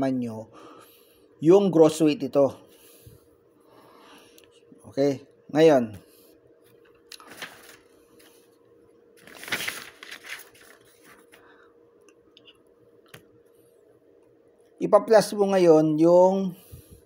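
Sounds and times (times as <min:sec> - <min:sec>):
faint steady hum: 0:00.0 - 0:17.0
paper rustling: 0:06.8 - 0:08.4, 0:09.2 - 0:11.4.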